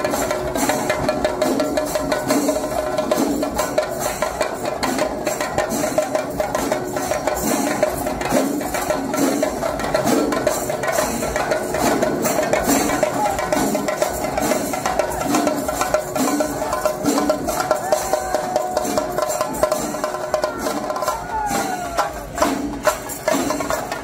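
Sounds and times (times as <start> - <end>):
rapid drum strokes: 0.0 - 24.0.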